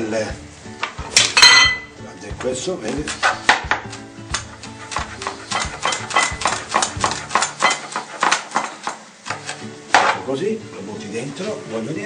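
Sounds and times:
background music with chords: 0:00.0 - 0:07.2
utensil clinking against pan: 0:01.2 - 0:01.9, 0:05.5 - 0:06.6.

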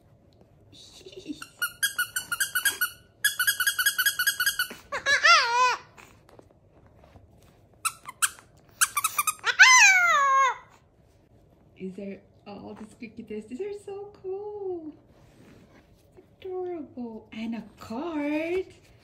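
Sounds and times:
squeaky dog toy squeaking: 0:01.4 - 0:05.9, 0:07.8 - 0:10.6.

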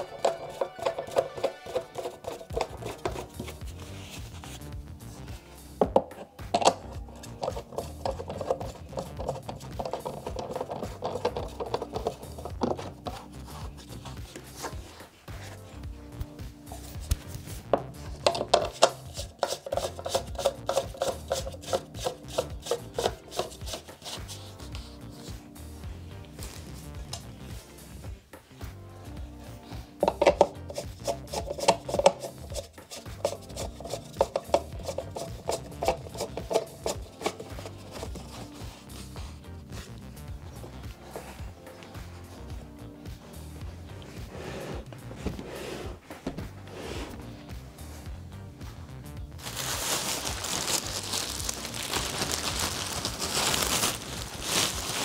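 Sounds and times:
plastic packaging crinkling: 0:49.4 - 0:55.0.

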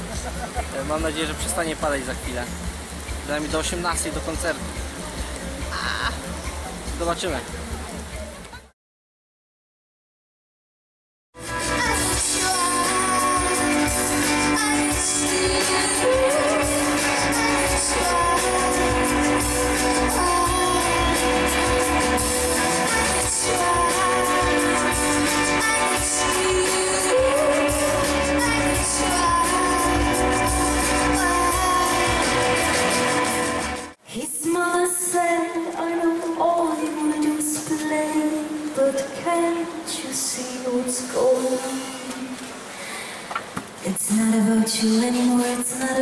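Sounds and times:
woman singing into a microphone: 0:11.4 - 0:33.4, 0:34.0 - 0:42.6, 0:43.8 - 0:46.0
live band playing: 0:11.4 - 0:34.0.

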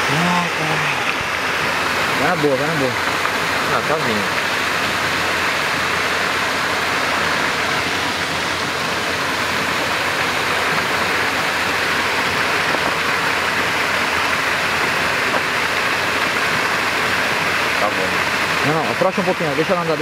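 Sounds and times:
churning water rushing: 0:00.0 - 0:20.0.

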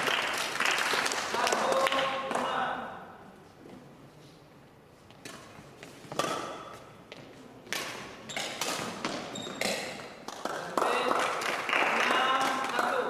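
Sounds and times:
rackets hitting shuttlecock: 0:05.2 - 0:06.9, 0:07.6 - 0:11.1.

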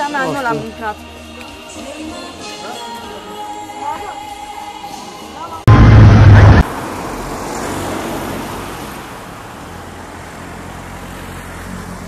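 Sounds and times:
steady low traffic hum: 0:05.7 - 0:06.6
vehicle passing by: 0:05.7 - 0:09.1.

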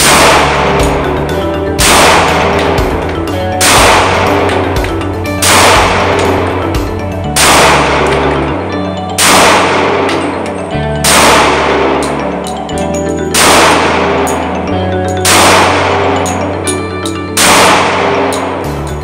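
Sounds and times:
pistol shots echoing indoors: 0:00.0 - 0:01.0, 0:01.8 - 0:02.8, 0:03.6 - 0:04.6, 0:05.4 - 0:06.6, 0:07.3 - 0:08.4, 0:09.2 - 0:10.4, 0:11.0 - 0:12.2, 0:13.3 - 0:14.4, 0:15.2 - 0:16.4, 0:17.4 - 0:18.6
background music: 0:00.0 - 0:19.0.

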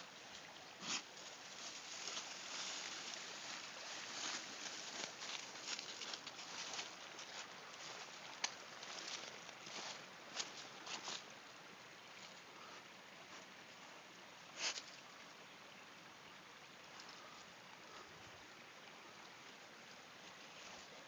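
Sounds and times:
rustling in dry leaves: 0:00.0 - 0:11.4
steady low hiss: 0:00.0 - 0:21.0
twigs crackling: 0:01.2 - 0:11.2.

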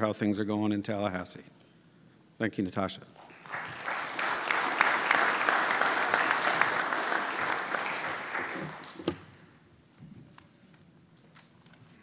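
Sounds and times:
audience applauding: 0:03.2 - 0:09.4.

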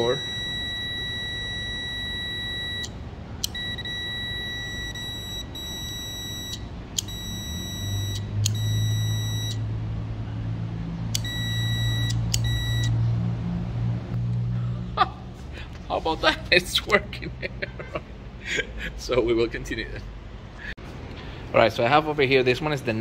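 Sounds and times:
multimeter continuity beep: 0:00.0 - 0:09.6, 0:11.2 - 0:13.0
low hum: 0:00.2 - 0:15.9.

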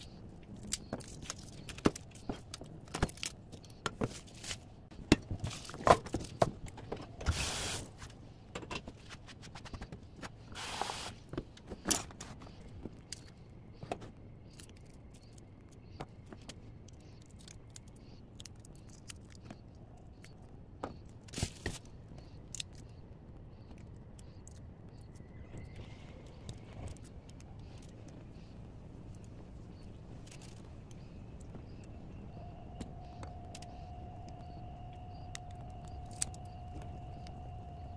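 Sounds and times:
short hissing rushes: 0:07.3 - 0:08.0, 0:10.6 - 0:11.2
garlic skins crackling as peeled: 0:35.2 - 0:37.4.

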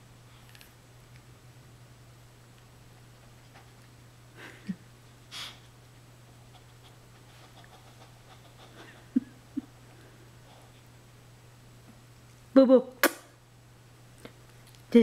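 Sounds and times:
dog snorting: 0:06.5 - 0:09.1.

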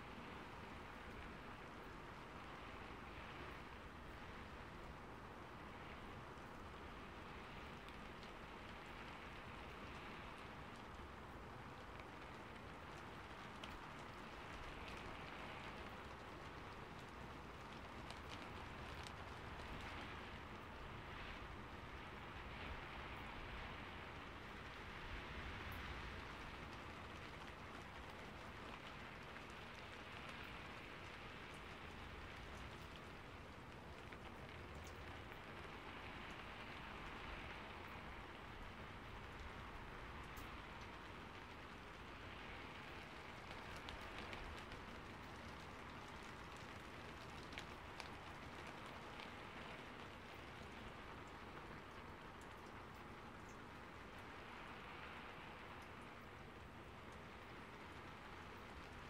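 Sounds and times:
faint rainfall hiss: 0:00.0 - 0:59.0
single raindrop tick: 0:24.6 - 0:59.0.

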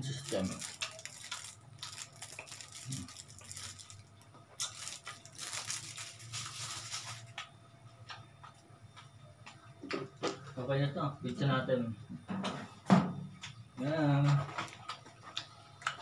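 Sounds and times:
plastic wrapper crinkling: 0:00.0 - 0:07.4
low steady hum: 0:00.0 - 0:16.0.

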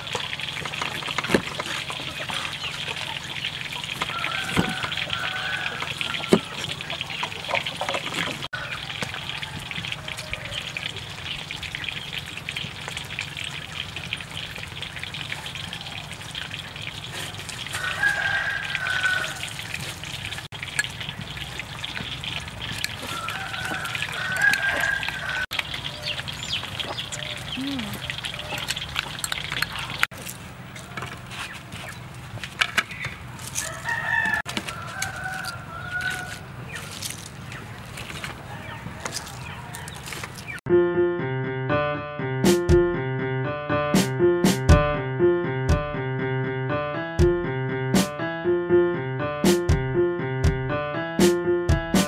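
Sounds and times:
bird calls: 0:20.9 - 0:30.0.

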